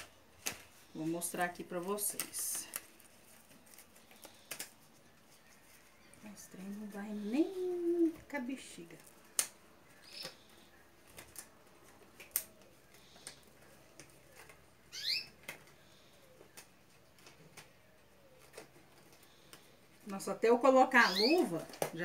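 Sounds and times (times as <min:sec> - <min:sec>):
glove crackling and clicking: 0:00.0 - 0:00.8, 0:02.1 - 0:05.3, 0:08.9 - 0:19.7.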